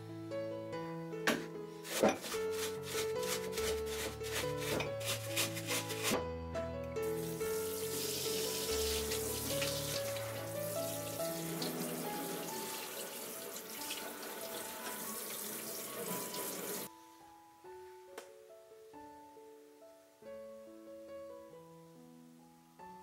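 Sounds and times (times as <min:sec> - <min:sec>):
background music: 0:00.0 - 0:23.0
tap water spraying on metal: 0:07.1 - 0:16.9.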